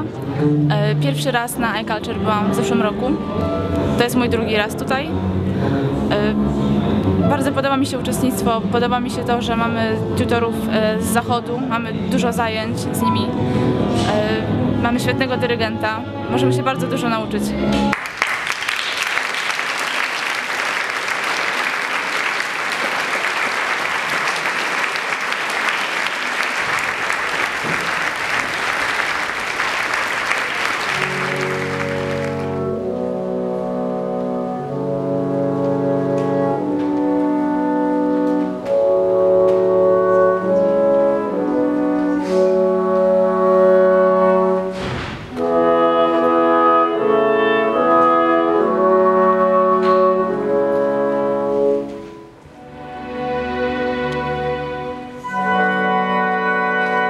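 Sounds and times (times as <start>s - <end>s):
noisy orchestral wash: 0.0s - 57.0s
brass playing sustained chords: 21.8s - 57.0s.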